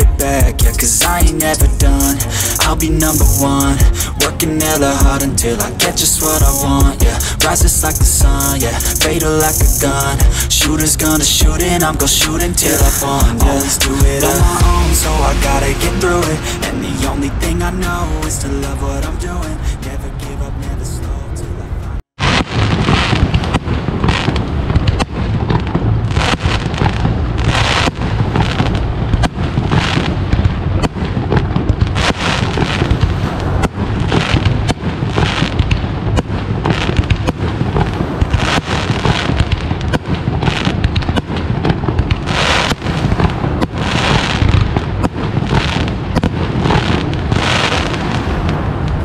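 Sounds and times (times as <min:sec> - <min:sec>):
steady low rumble: 0:00.0 - 0:49.0
rapid pops and sharp bangs: 0:22.2 - 0:48.2.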